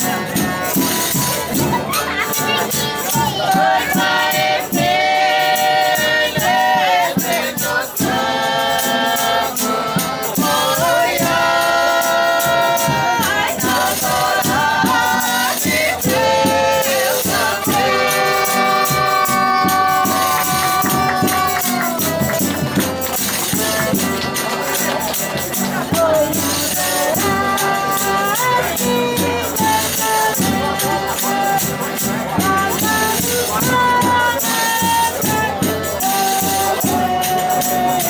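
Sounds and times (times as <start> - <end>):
strummed guitars: 0.0 - 38.0
voices singing in harmony: 0.0 - 38.0
piano accordions: 7.6 - 38.0
tambourine shaking: 11.7 - 38.0.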